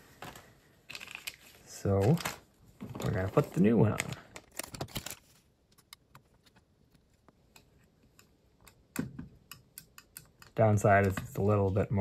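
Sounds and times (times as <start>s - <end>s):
packaging crinkling: 0.2s - 6.0s
small clicks and taps of handling: 4.0s - 11.4s.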